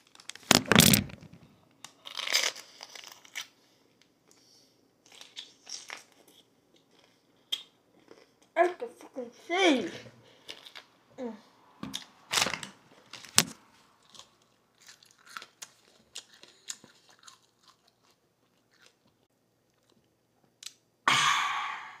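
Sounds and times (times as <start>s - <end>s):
person crunching a pepper: 1.8s - 4.4s, 5.0s - 8.6s, 10.4s - 10.9s, 14.0s - 20.8s
loud breathy exhale: 21.1s - 22.0s.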